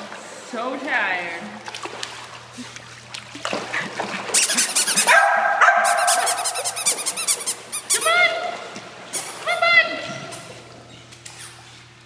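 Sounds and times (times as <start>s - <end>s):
dog barking and yipping: 4.4s - 7.3s.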